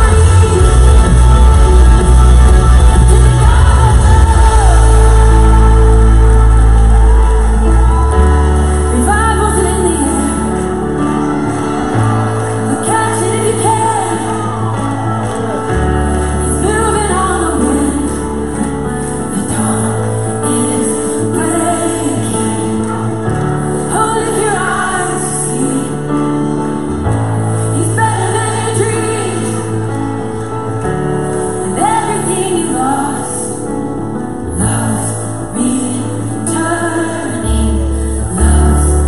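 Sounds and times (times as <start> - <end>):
long held bass notes: 0.0 - 10.0
sung melody: 0.0 - 39.0.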